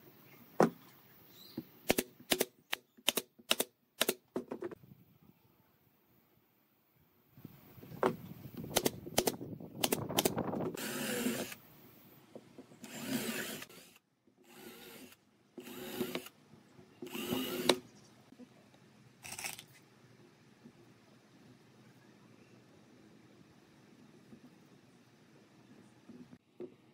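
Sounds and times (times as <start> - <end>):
cordless drill boring wood: 10.8 - 11.6, 12.8 - 16.4, 17.0 - 17.8.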